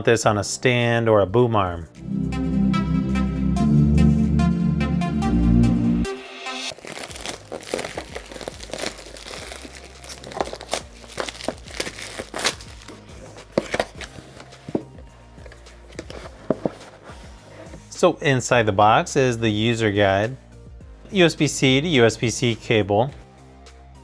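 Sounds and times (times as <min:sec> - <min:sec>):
plastic wrap crinkling and tearing: 0:06.7 - 0:14.6
cardboard box opening: 0:06.8 - 0:15.0, 0:15.9 - 0:17.8.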